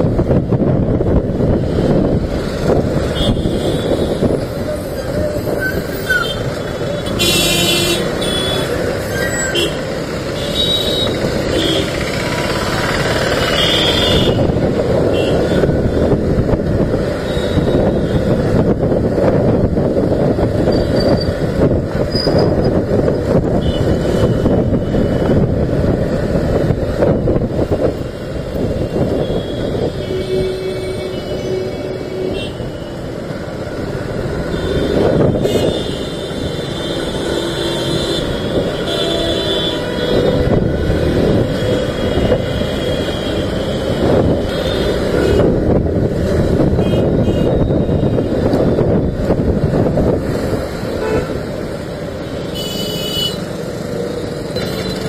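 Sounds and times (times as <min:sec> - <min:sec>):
wind on microphone: 0:00.0 - 0:05.9, 0:14.0 - 0:30.6, 0:43.8 - 0:51.5
motorcycle engine: 0:10.0 - 0:16.6.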